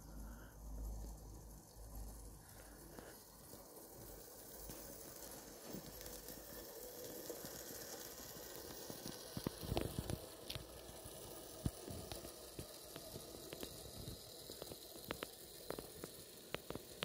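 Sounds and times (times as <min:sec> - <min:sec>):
model train running: 0:00.0 - 0:17.0.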